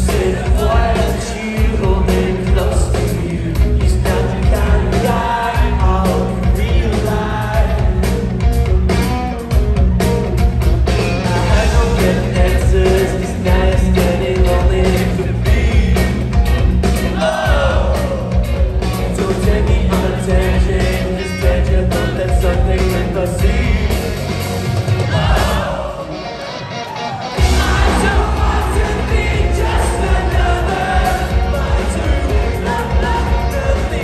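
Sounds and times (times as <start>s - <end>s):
drums: 0.0s - 34.0s
electric guitars: 0.0s - 34.0s
person singing: 27.4s - 34.0s.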